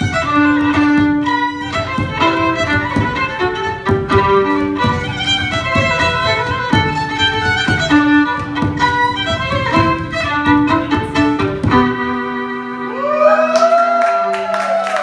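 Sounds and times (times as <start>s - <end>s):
regular low beat: 0.0s - 12.1s
fiddle playing a quick tune: 0.0s - 13.5s.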